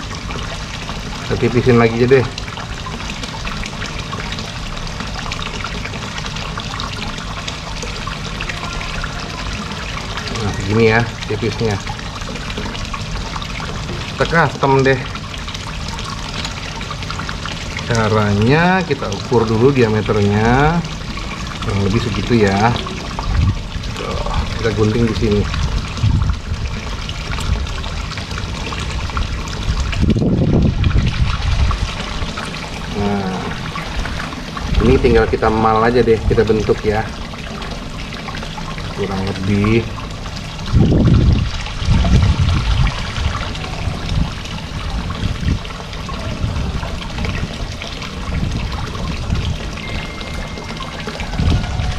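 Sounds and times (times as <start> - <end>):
water trickling and splashing: 0.0 - 51.9
low rumble: 22.8 - 24.8, 25.4 - 26.8.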